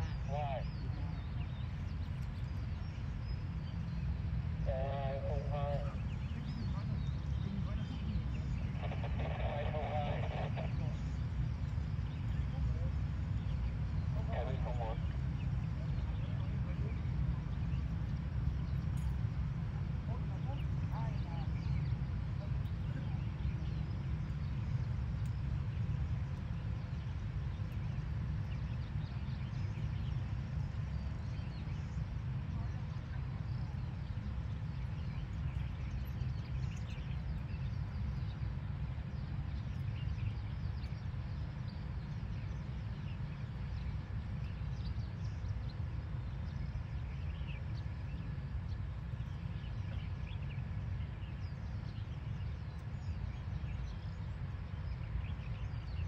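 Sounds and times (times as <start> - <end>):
steady low rumble: 0.0 - 56.0.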